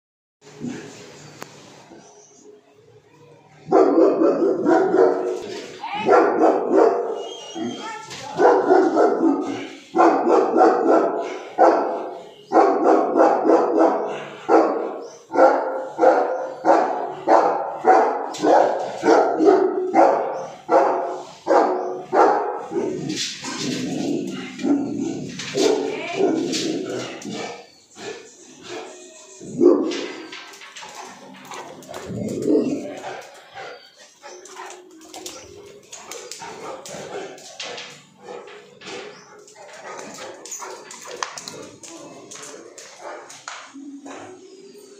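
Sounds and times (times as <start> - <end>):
dog barking aggressively: 3.7 - 7.2, 8.3 - 27.6
dog vocalizing: 31.1 - 37.3.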